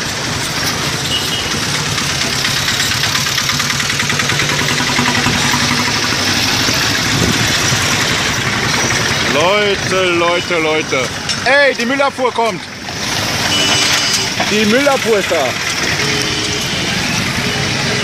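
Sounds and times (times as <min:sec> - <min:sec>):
vehicle engines humming: 0:00.0 - 0:18.0
fast rattle: 0:01.8 - 0:10.2.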